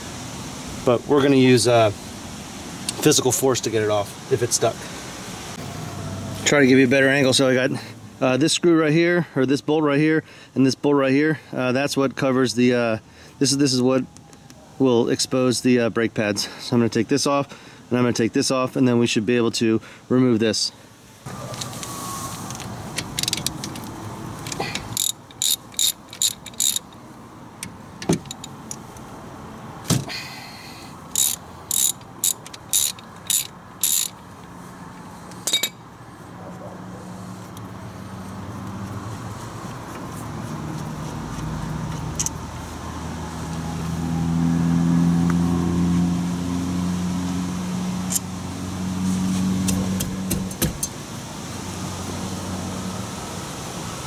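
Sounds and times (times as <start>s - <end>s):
vehicle engine hum: 4.4s - 8.2s, 21.2s - 54.0s
ratchet wrench clicking: 23.0s - 27.0s, 31.1s - 34.2s, 42.1s - 42.4s.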